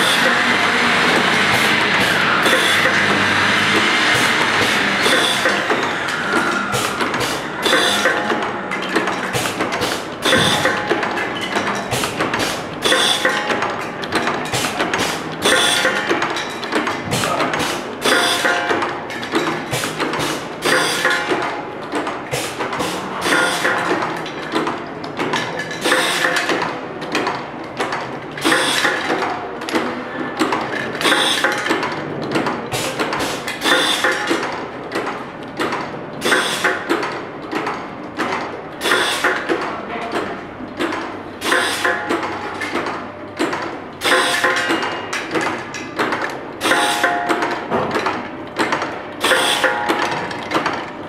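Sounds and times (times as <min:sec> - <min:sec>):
machine clacking and clicking: 0:00.0 - 0:51.0
heavy machine clunk: 0:01.0 - 0:26.6.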